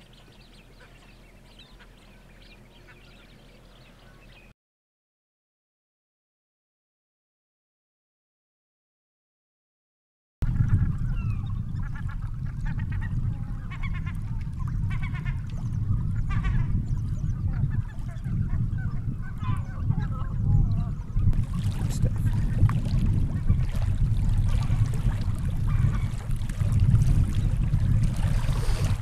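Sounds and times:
seabirds calling: 0.0 - 4.5, 10.5 - 29.0
steady low rumble: 10.4 - 29.0.

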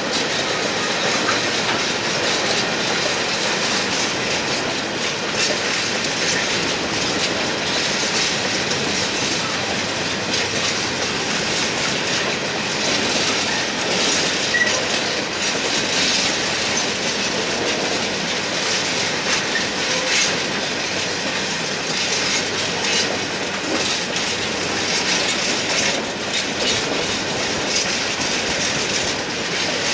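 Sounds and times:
clickety-clack over rail joints: 0.0 - 29.9
train wheels on rails: 0.0 - 29.9
high wheel squeal: 14.4 - 14.9.

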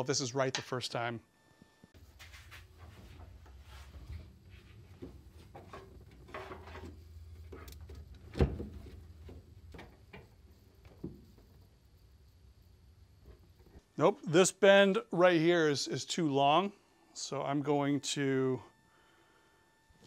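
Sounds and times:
rustling and light knocks: 2.0 - 11.6.

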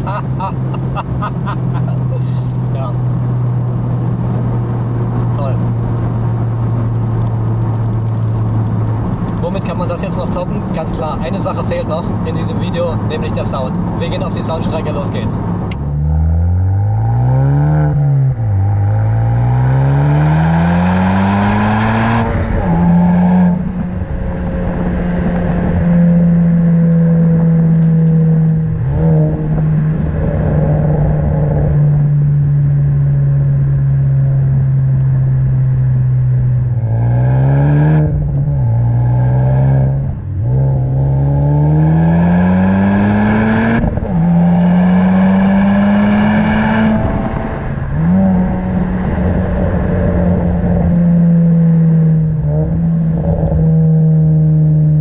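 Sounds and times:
car engine accelerating through gears: 15.4 - 55.0.

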